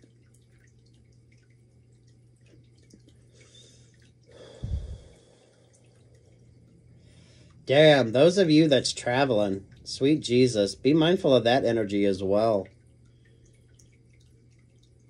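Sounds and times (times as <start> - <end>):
faint steady hum: 0.0 - 15.0
man exhaling breathy puff: 4.3 - 5.2.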